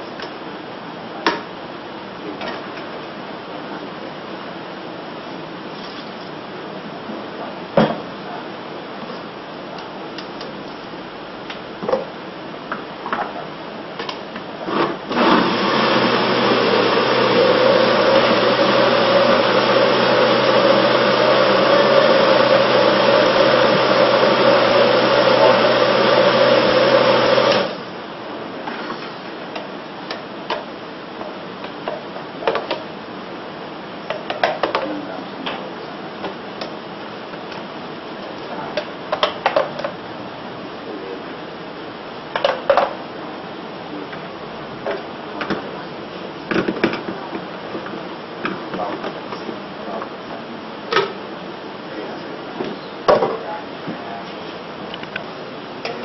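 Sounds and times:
blender running: 14.7s - 27.9s.

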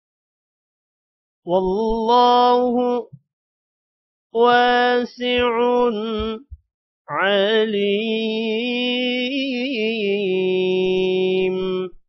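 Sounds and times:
man reciting melodically: 1.5s - 3.2s, 4.4s - 12.0s.

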